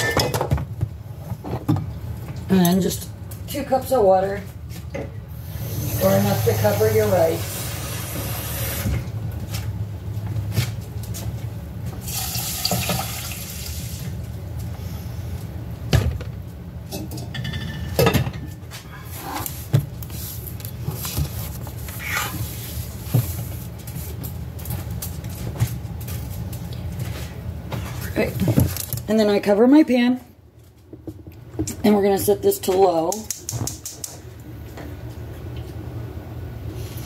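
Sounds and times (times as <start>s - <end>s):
cookware clinking and knocking: 0.0s - 0.6s, 16.9s - 18.5s
faucet running water: 12.0s - 14.0s.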